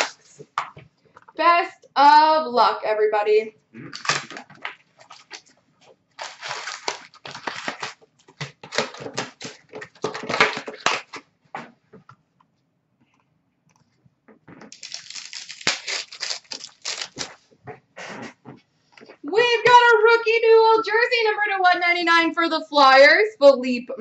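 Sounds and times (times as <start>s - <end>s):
card packs being torn open: 0.0s - 0.4s, 3.9s - 5.5s, 6.2s - 11.2s, 14.7s - 17.4s
wrappers crinkling and rustling: 0.0s - 0.6s, 4.0s - 11.2s, 14.7s - 17.5s.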